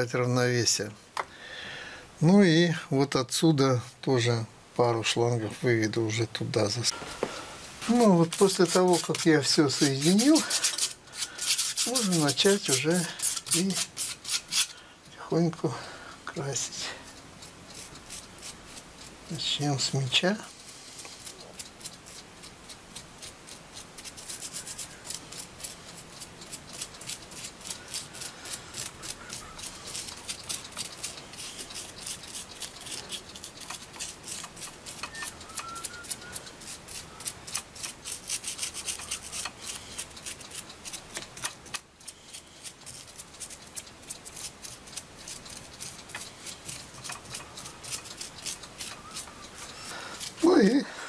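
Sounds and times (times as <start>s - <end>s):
paintbrush scrubbing: 7.8s - 14.7s, 17.0s - 22.2s, 22.9s - 50.8s.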